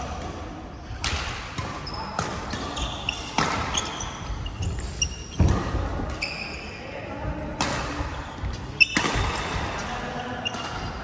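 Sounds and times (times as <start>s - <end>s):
racket hitting shuttlecock: 1.0s - 6.3s, 7.4s - 8.1s, 8.7s - 11.0s
shoe squeaks: 1.8s - 6.9s, 8.2s - 9.4s, 10.2s - 11.0s.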